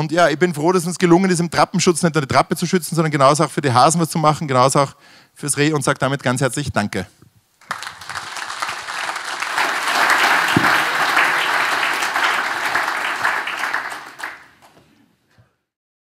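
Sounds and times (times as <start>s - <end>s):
audience applauding: 7.6s - 14.8s.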